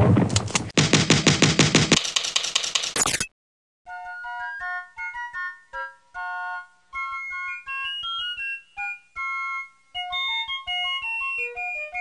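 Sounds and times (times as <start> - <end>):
bright keyboard melody: 3.9 - 12.0.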